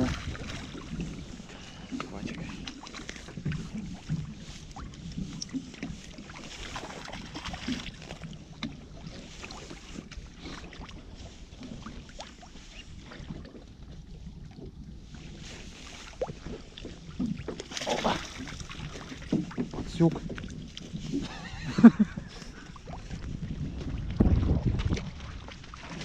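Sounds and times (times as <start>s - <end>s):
wet net rustling and dripping: 0.0s - 13.6s, 15.4s - 19.8s
steady low rumble: 19.7s - 25.6s.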